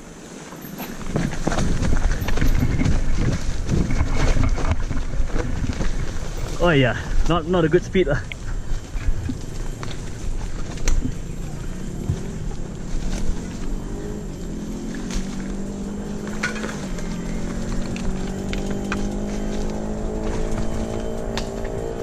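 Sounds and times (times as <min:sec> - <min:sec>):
tyre rumble on dirt: 0:00.4 - 0:22.0
knocks from bumps and stones: 0:16.2 - 0:17.0.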